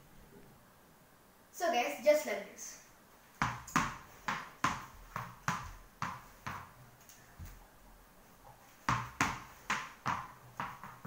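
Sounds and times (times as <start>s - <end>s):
ball bouncing on marble floor: 3.4s - 7.6s, 8.4s - 11.0s.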